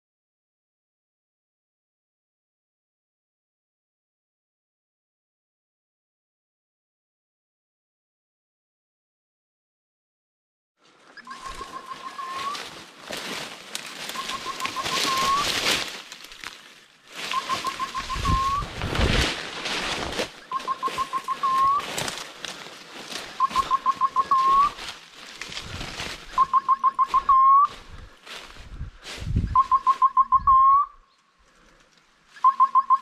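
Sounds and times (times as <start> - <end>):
rustling through dry leaves: 10.8 - 30.1.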